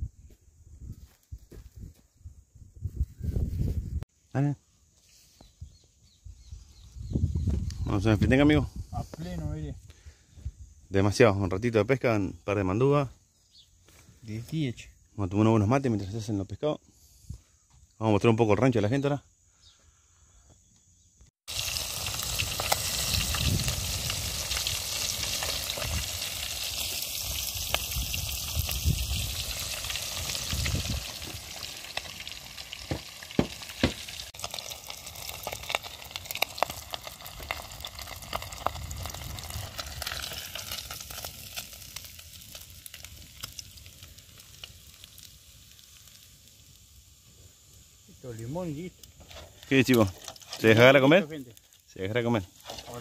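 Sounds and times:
fish sizzling in hot oil: 21.4 - 53.0.

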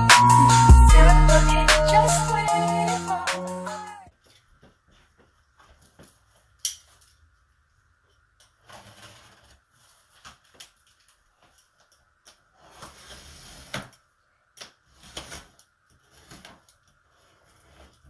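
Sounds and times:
box cutter slitting cardboard: 8.7 - 10.5, 12.6 - 14.0, 14.9 - 16.7.

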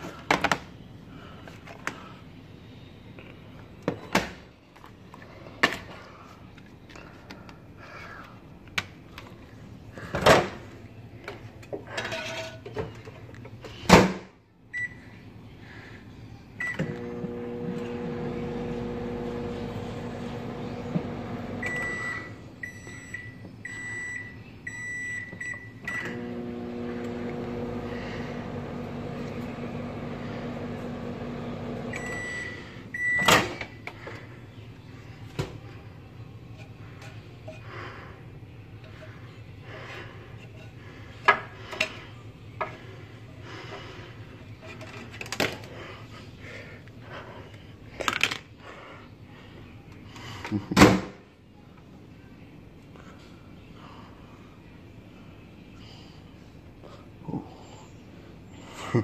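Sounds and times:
microwave oven humming: 16.6 - 33.6.

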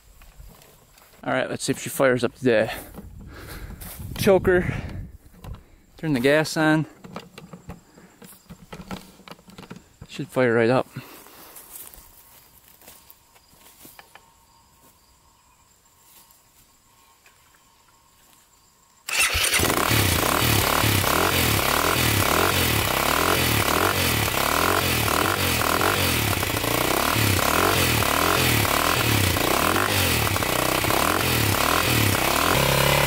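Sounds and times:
motorcycle engine starting and running: 2.6 - 9.9, 19.1 - 33.0.

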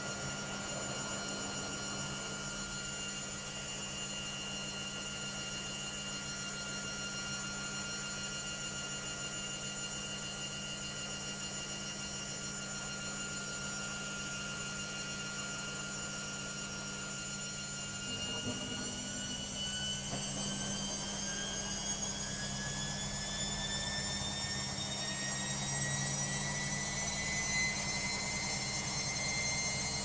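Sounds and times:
washing machine motor whine: 0.0 - 30.0.

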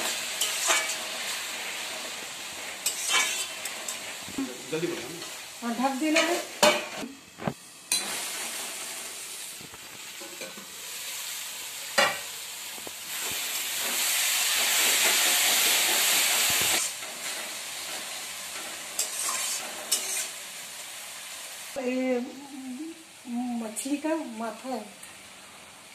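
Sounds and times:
spatula scraping a pan: 0.0 - 4.2, 14.6 - 20.4
curry sizzling: 0.0 - 25.9.

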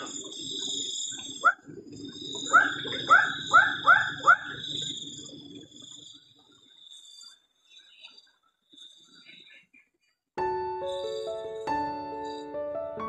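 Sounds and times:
high-pitched insect drone: 0.0 - 9.5, 10.4 - 12.8
animal calling: 2.4 - 4.6.

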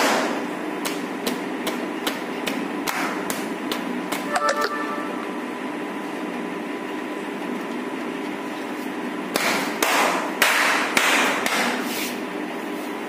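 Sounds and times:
steady hum: 0.1 - 7.7.

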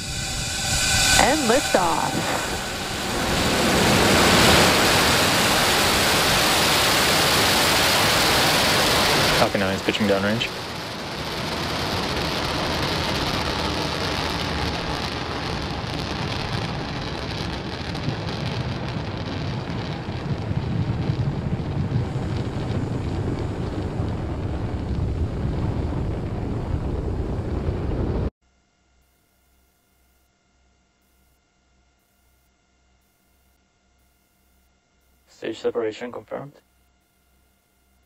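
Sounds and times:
rocket engines roaring: 0.0 - 28.3, 35.3 - 36.6.

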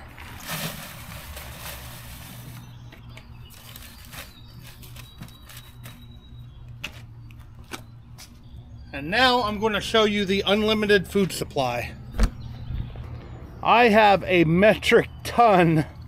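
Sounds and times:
dirt pouring into plastic bucket: 0.0 - 2.7
dirt trickling: 0.0 - 7.0.

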